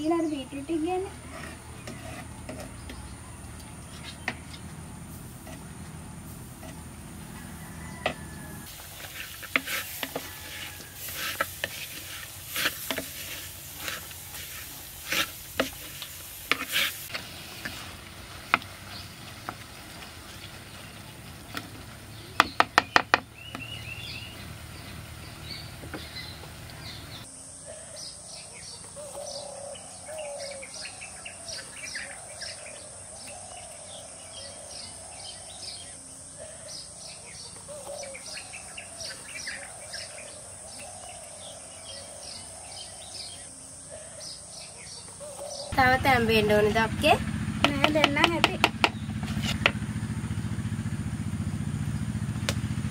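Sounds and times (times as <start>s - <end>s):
birds chirping: 0.0s - 52.9s
spoon scraping clay pot: 1.1s - 3.1s, 3.9s - 4.6s, 5.4s - 5.7s, 8.1s - 17.9s
high insect buzz: 3.8s - 18.2s.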